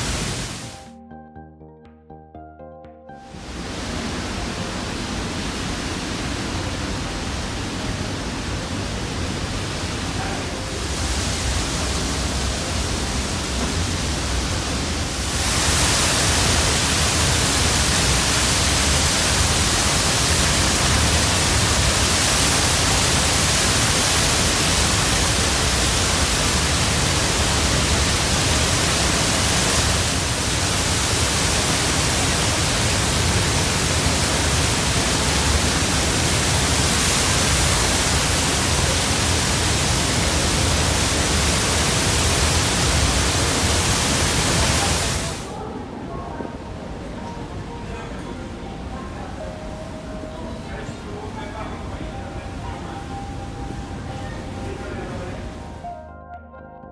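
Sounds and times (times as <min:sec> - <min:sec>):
waterfall rushing: 0:00.0 - 0:00.8, 0:03.3 - 0:46.0.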